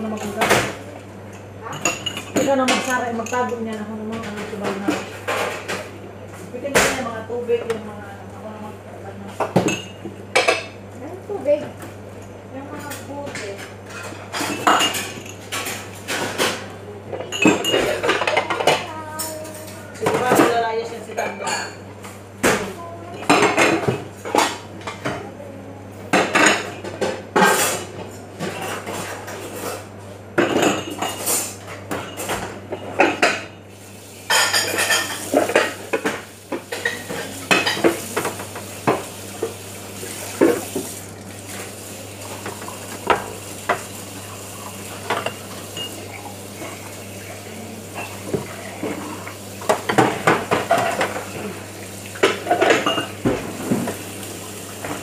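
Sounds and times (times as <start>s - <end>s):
dishes and cutlery clattering: 1.6s - 5.9s, 12.8s - 21.8s, 26.1s - 33.6s, 34.3s - 39.5s, 45.0s - 51.6s, 52.2s - 54.0s.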